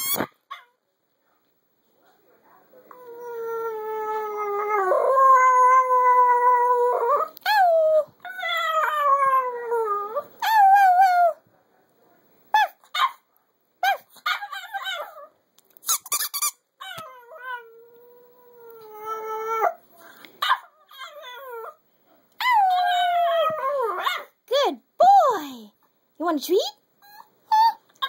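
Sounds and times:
dog yipping: 0.0 - 0.8, 12.6 - 13.2, 20.4 - 21.7.

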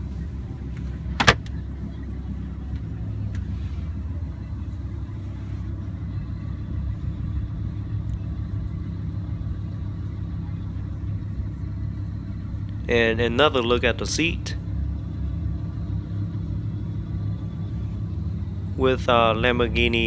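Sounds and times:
car cabin low rumble: 0.0 - 20.0
glove box lid click: 1.2 - 1.5.

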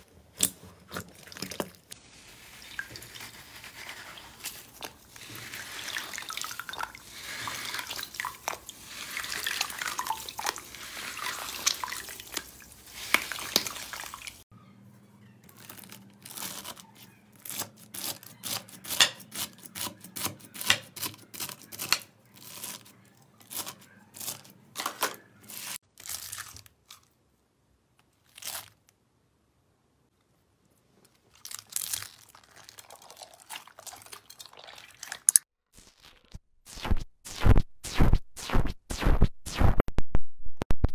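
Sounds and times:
floral foam crunching: 0.8 - 14.3, 15.5 - 18.3.

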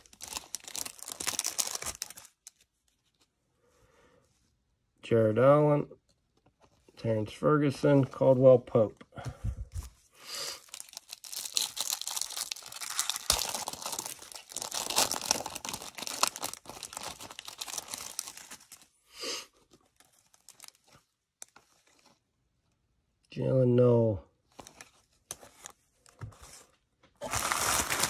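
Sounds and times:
wrapper being torn and crinkled: 0.0 - 3.0, 10.6 - 18.9, 19.8 - 22.1, 27.2 - 28.0.

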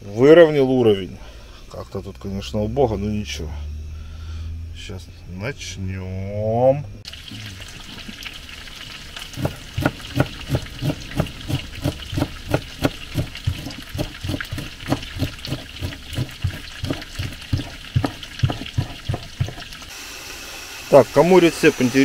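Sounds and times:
knife chopping on wooden board: 9.4 - 19.7.

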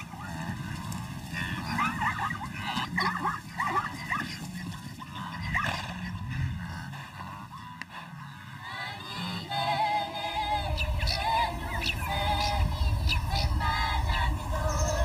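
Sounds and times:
high yelping animal calls: 0.0 - 15.0
steady low background noise: 0.0 - 15.0.

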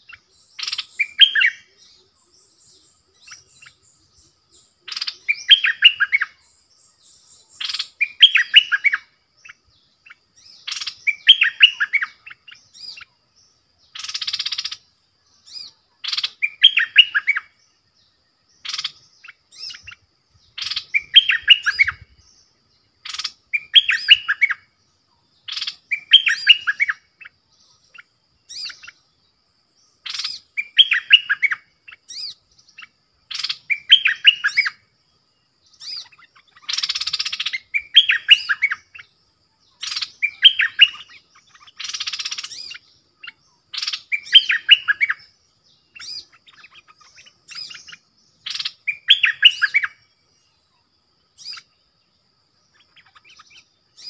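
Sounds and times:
harsh rasping bird chatter: 0.0 - 1.5, 4.9 - 6.3, 7.5 - 13.1, 13.9 - 17.4, 18.6 - 22.4, 23.0 - 24.6, 25.5 - 29.1, 30.0 - 34.7, 35.8 - 39.1, 39.8 - 49.9, 52.7 - 54.0
bulbuls singing warbled phrases: 0.0 - 35.0, 35.6 - 54.0.

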